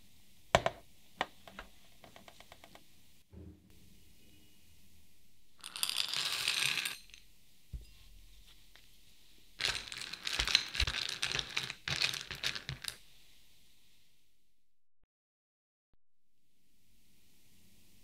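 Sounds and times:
chocolate discs rattling in glass bowl: 5.6 - 7.2, 9.6 - 13.0.

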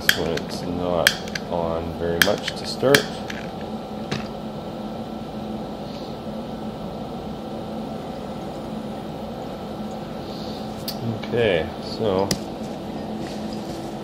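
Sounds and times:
gas generator humming and hissing: 0.0 - 14.0.

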